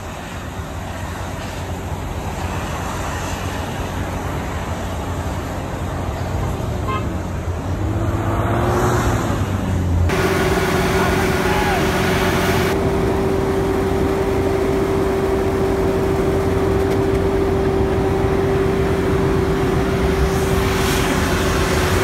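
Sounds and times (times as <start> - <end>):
vehicle engines under load: 0.0 - 22.0
tyres spinning in snow: 10.1 - 22.0.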